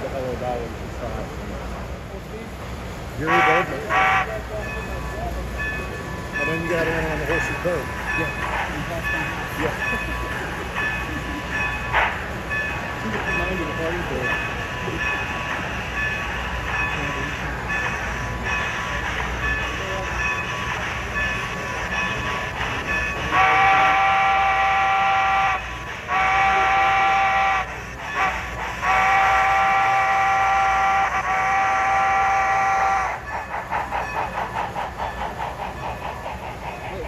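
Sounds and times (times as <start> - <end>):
model train rumbling: 0.0 - 37.0
model train steam whistle: 3.3 - 4.4, 23.3 - 33.2.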